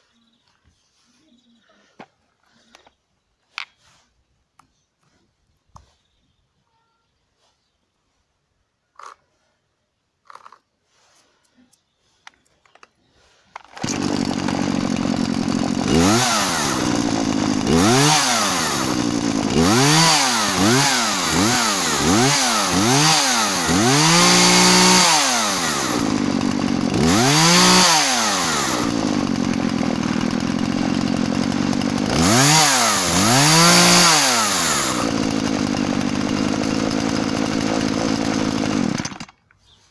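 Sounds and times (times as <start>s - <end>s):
chainsaw engine idling and revving: 13.6s - 39.4s.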